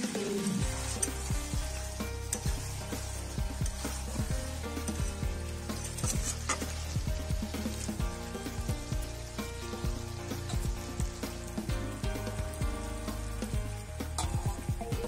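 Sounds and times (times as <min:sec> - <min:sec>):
curry sizzling in a pan: 0:00.0 - 0:15.0
spatula scraping a metal pan: 0:00.5 - 0:11.6.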